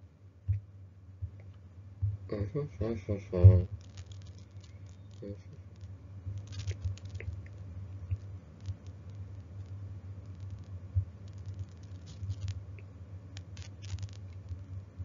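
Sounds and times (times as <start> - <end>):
low steady hum: 0.0 - 15.0
light clicks and rustles: 3.4 - 14.8.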